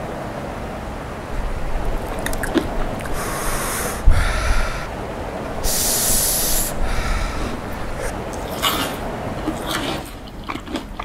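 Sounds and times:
man eating: 1.8s - 4.9s, 5.6s - 11.0s
breathy hissing exhalations: 2.9s - 5.0s, 5.6s - 9.0s.

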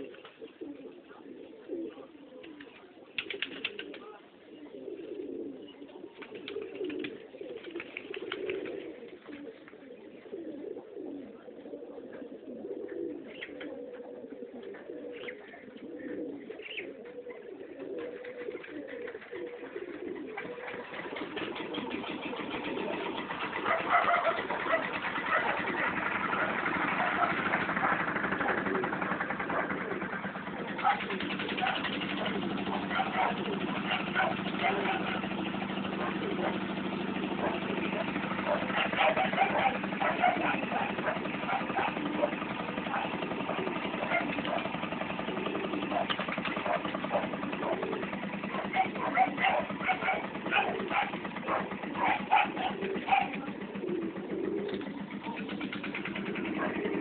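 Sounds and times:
pigeons cooing: 0.0s - 57.0s.

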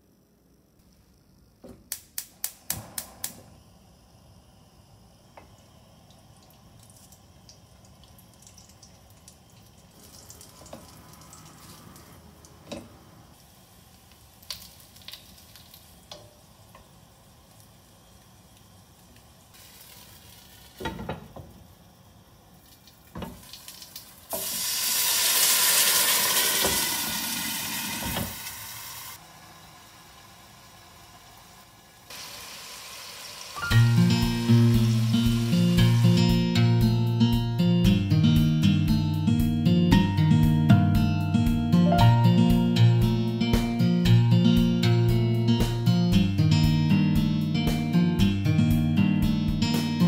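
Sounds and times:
dumplings sizzling in oil: 13.3s - 36.7s
water sizzling in hot pan: 13.3s - 36.8s.

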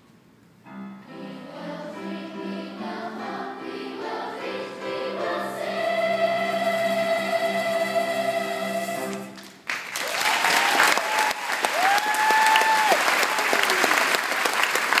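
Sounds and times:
choir holding chord: 0.7s - 9.4s
audience applause: 9.4s - 15.0s
audience cheering: 9.7s - 15.0s.

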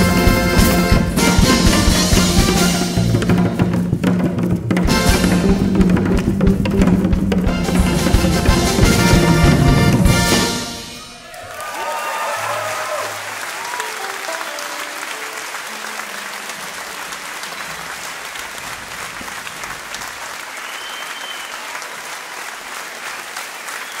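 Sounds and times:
descending instrument notes: 0.0s - 17.6s
audience applauding: 4.9s - 24.0s.

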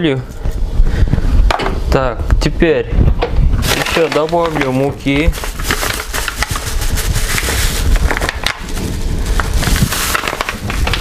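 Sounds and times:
low rumble of rubbing: 2.9s - 11.0s
crinkly rustling and crackling: 3.6s - 11.0s.

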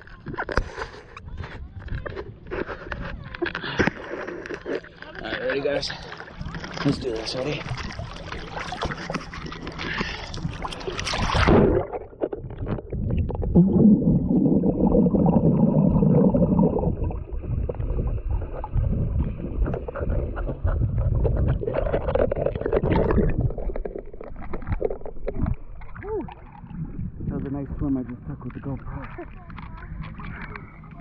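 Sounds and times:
underwater rumble: 0.0s - 31.0s
water splashing: 3.4s - 31.0s
bubbling underwater: 6.3s - 31.0s.

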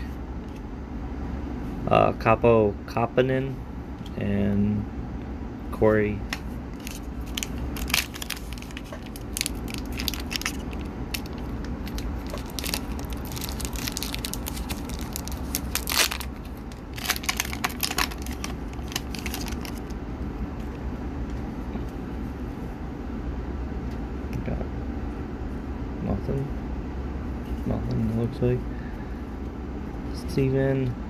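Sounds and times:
low hum: 0.0s - 31.0s
foil wrapper crinkling and tearing: 6.8s - 19.9s.

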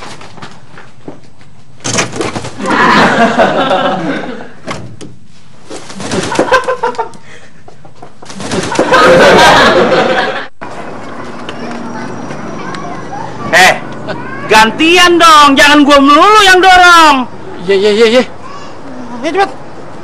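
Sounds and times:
wings flapping: 1.8s - 2.9s, 5.6s - 7.2s, 8.2s - 9.6s.

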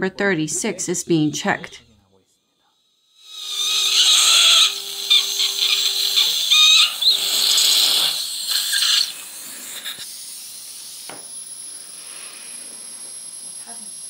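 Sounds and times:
surgical suction squeals: 3.2s - 14.0s.

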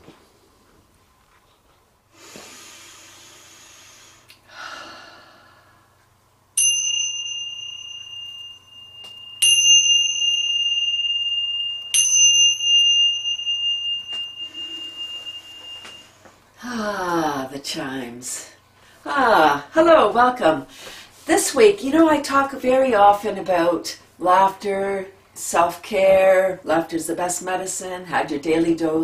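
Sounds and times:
small cymbals ringing: 6.5s - 16.5s.

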